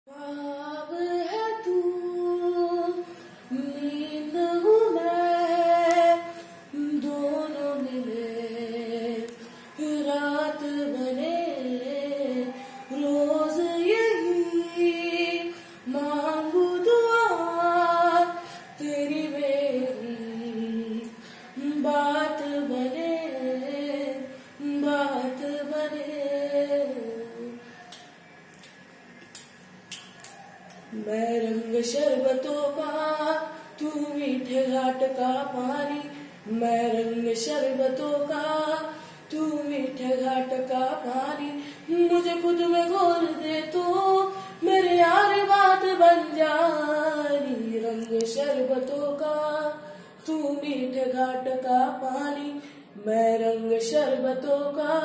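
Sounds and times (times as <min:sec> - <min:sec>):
woman singing unaccompanied: 0:00.0 - 0:28.1, 0:30.9 - 0:55.0
singer breathing: 0:09.4 - 0:09.8, 0:15.5 - 0:15.9, 0:18.4 - 0:18.8, 0:21.1 - 0:21.6, 0:38.9 - 0:39.3, 0:41.6 - 0:41.9, 0:49.8 - 0:50.2.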